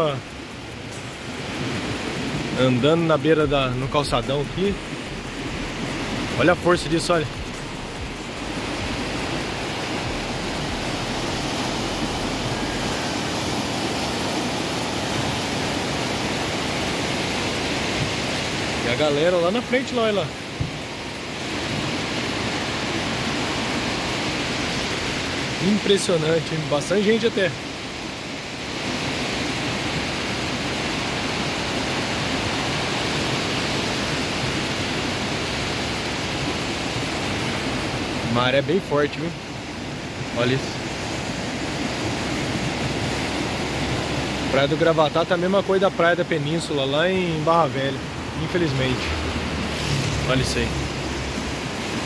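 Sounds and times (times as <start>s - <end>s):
steady rain: 0.0s - 52.0s
surf breaking on shore: 0.0s - 52.0s
surf breaking on rocks: 28.8s - 52.0s.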